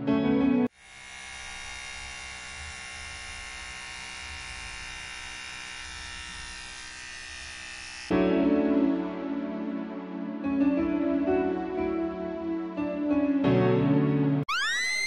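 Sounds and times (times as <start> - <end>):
music: 0.0 - 0.7, 8.1 - 14.7
electric hair clipper buzzing: 0.7 - 8.1.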